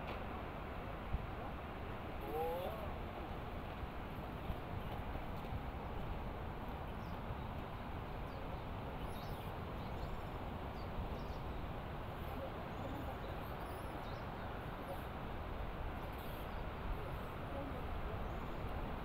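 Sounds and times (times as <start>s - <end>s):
small birds chirping faintly: 5.8s - 15.2s, 15.9s - 18.8s.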